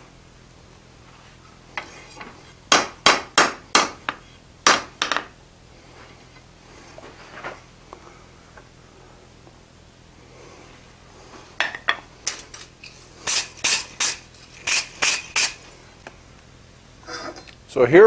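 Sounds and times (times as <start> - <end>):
hammer striking iron on anvil: 2.7 - 5.3.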